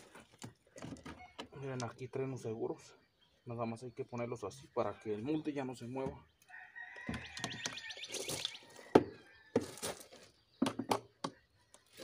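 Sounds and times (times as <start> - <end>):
wooden mold knocking and clacking: 10.6 - 11.4.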